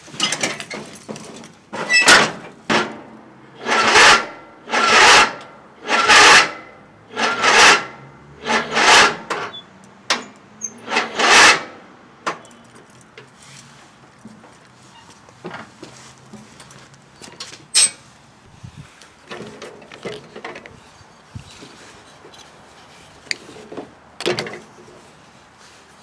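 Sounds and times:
rasping scrapes: 7.1s - 9.3s, 10.8s - 11.7s.

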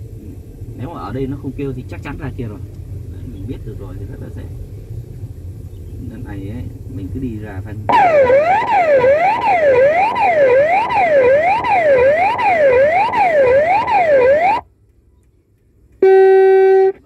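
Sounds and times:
electronic wailing siren: 7.9s - 14.6s.

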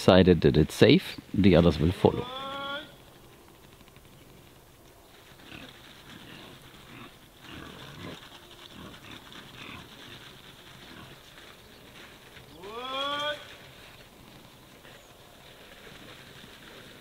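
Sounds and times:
pigs grunting: 5.3s - 11.3s.

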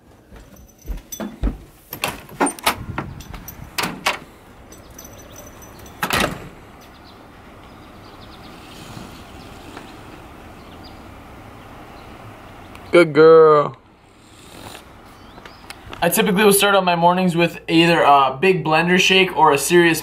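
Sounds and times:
door latch clicks and knocks: 2.0s - 4.2s, 6.0s - 6.5s.

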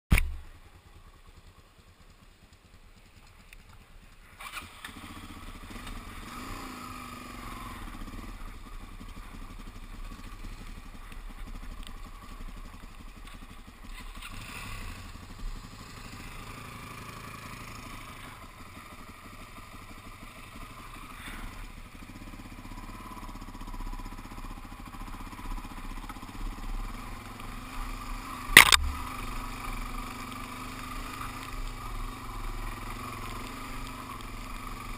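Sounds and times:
motorcycle engine running: 0.2s - 34.9s
sharp knock: 28.6s - 29.0s.

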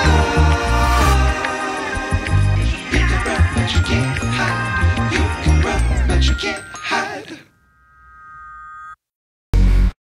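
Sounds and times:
background music with bass and percussion: 0.0s - 6.4s.

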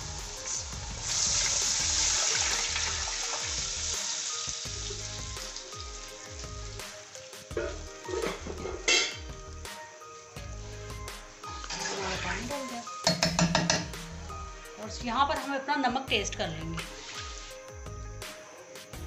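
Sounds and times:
sizzle and bubble: 0.0s - 14.7s, 16.4s - 18.2s
water hissing in hot oil: 0.0s - 14.8s, 16.6s - 19.0s.

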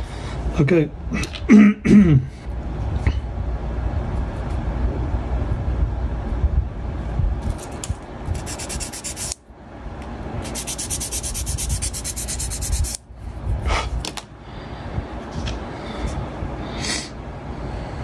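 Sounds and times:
sanding stick scrubbing plastic: 7.5s - 9.4s, 10.4s - 13.0s.

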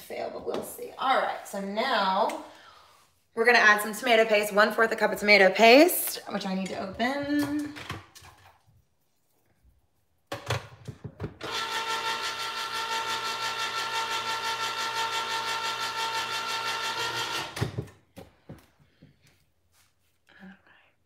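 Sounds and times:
electric can opener whining: 11.2s - 18.0s.

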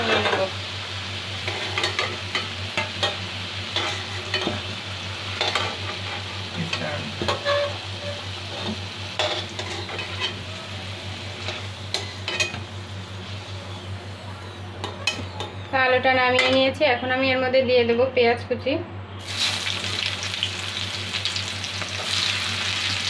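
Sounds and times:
potatoes sizzling in hot oil: 0.0s - 13.6s, 19.2s - 23.0s
metal utensil scraping pan: 1.4s - 4.6s, 5.4s - 10.4s.

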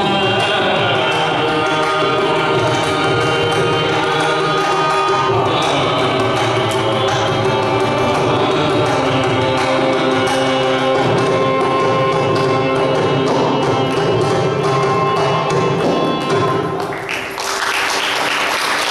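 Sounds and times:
person singing: 0.0s - 16.9s
violin: 0.0s - 16.9s
hand drum strokes: 0.0s - 17.0s
audience applause: 16.7s - 18.9s.

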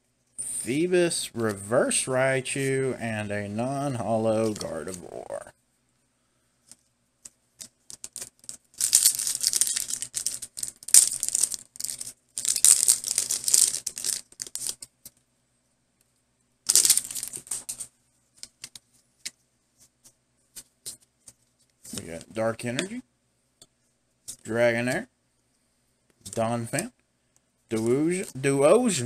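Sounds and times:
cards clicking and tapping: 6.7s - 15.2s
foil wrapper crinkling and tearing: 7.9s - 14.8s, 16.7s - 17.8s.

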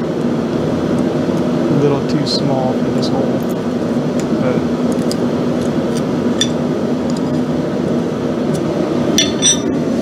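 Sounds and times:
metal tool clinking on anvil: 9.2s - 9.7s.

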